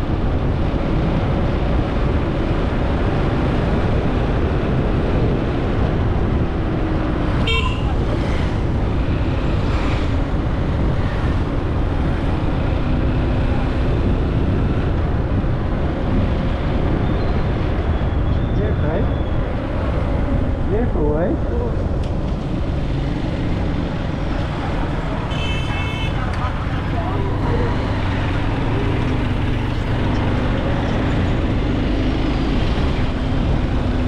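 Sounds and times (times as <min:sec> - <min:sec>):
road traffic rumble: 0:00.0 - 0:34.0
vehicle horn toot: 0:07.4 - 0:08.0, 0:25.3 - 0:26.3.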